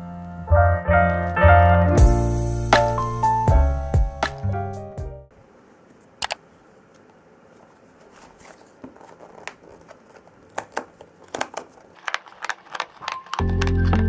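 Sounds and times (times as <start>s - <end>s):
tear strip ripping open: 9.0s - 14.0s.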